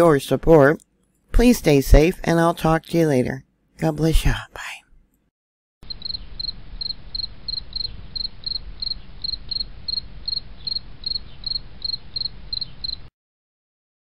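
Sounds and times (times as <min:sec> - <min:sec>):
insect chirping: 0:05.8 - 0:13.1.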